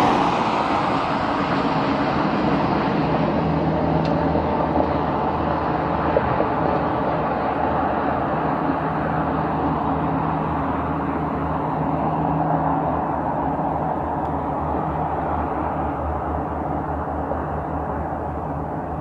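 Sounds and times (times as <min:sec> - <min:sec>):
jet engines rushing on landing: 0:00.0 - 0:19.0.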